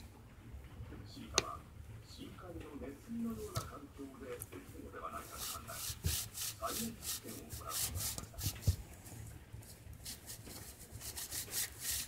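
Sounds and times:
paper rubbing on wooden floor: 5.1s - 12.0s.

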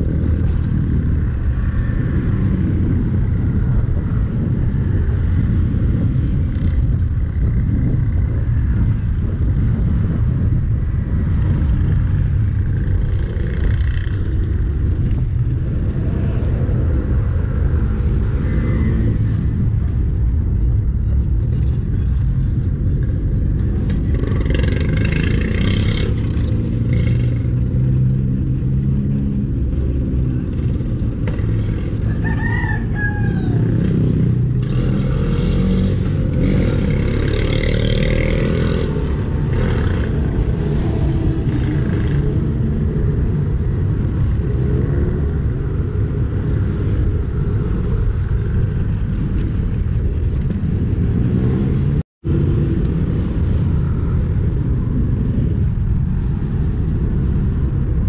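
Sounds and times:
traffic noise: 0.0s - 58.0s
wind on microphone: 0.0s - 58.0s
rooster crowing: 32.0s - 34.0s.

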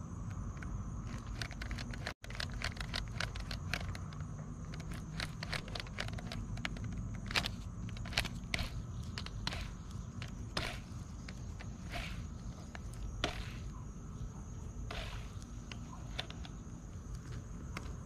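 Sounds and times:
fishing rod handling scrapes and clicks: 4.7s - 13.8s, 14.8s - 16.6s.

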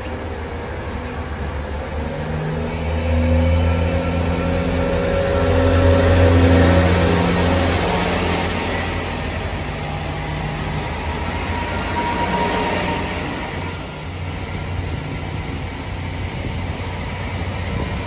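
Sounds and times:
diesel engine humming: 0.0s - 18.0s
train passing close: 0.0s - 18.0s.

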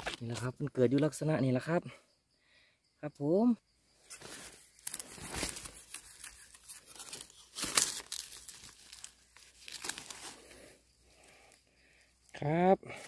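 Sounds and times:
bamboo shoot cracking: 0.0s - 1.1s, 4.1s - 11.4s
dry leaves rustling: 4.2s - 10.7s
knife cutting bamboo shoot: 4.8s - 10.4s.

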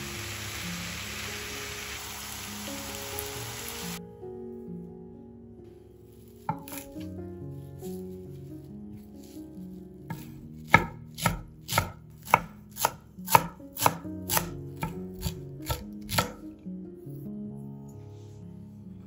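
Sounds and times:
knife chopping on cutting board: 6.5s - 7.0s, 10.1s - 16.4s.

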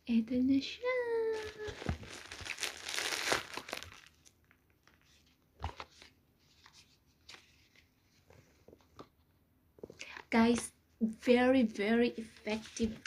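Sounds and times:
packaging crinkling and tearing: 1.2s - 6.1s.

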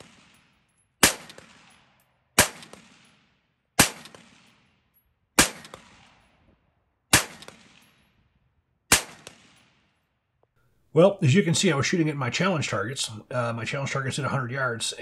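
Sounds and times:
rifle shots echoing: 0.0s - 10.1s.

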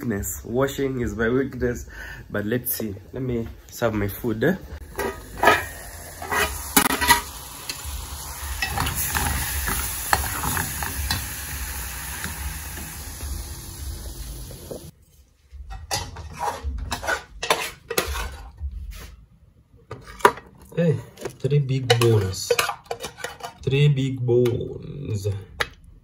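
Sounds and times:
food sizzling in pan: 4.8s - 14.9s
spoon scraping pan: 4.9s - 7.9s, 8.5s - 11.4s, 15.6s - 19.0s, 21.0s - 23.7s.

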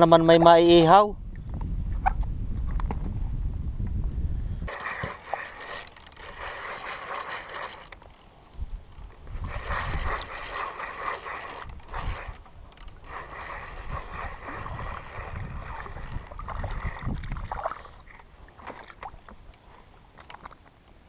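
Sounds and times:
water sloshing and gurgling: 4.6s - 20.8s
fishing reel cranking: 4.7s - 8.1s, 9.2s - 17.2s.

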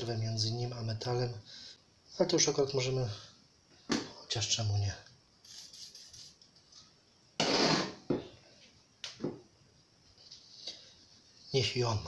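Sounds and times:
aerosol spray hiss: 5.4s - 6.4s.

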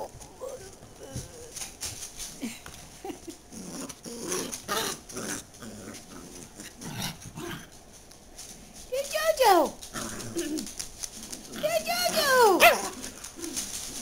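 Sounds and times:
small dog growling: 3.5s - 7.8s, 9.8s - 14.0s
fabric rustling: 7.7s - 14.0s.

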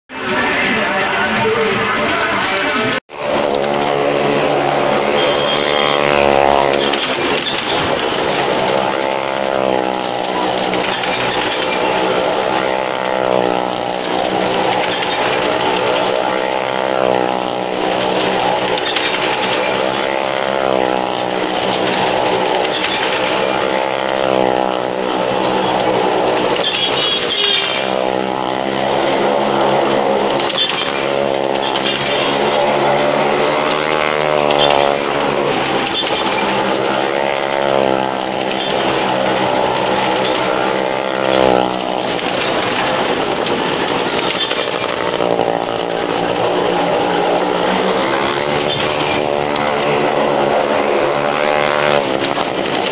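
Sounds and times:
car and motorcycle engines circling: 0.1s - 52.9s.

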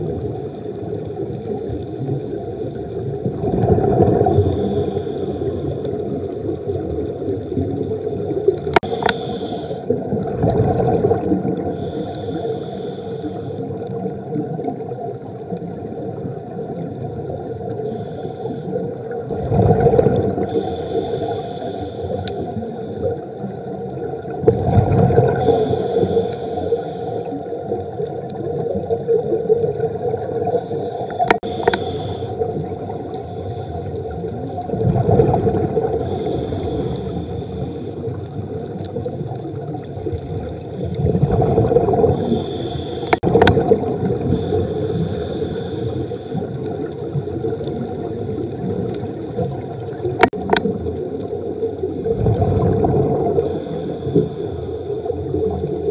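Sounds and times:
exhaled bubbles gurgling: 0.0s - 55.9s
scuba regulator breathing underwater: 3.4s - 6.4s, 8.6s - 13.9s, 17.6s - 23.5s, 24.7s - 27.9s, 30.1s - 38.3s, 40.6s - 47.1s, 51.9s - 55.9s
steady hum: 30.7s - 33.8s, 42.1s - 43.4s, 44.0s - 46.4s
sharp clicks: 31.2s - 32.0s.

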